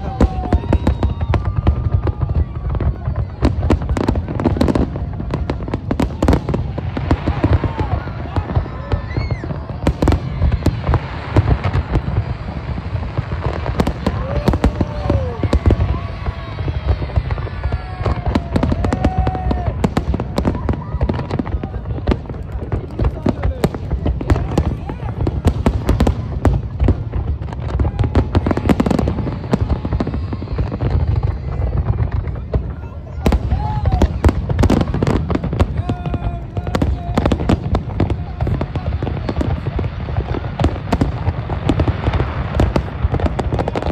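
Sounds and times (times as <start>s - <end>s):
fireworks bangs and crackles: 0.0s - 43.9s.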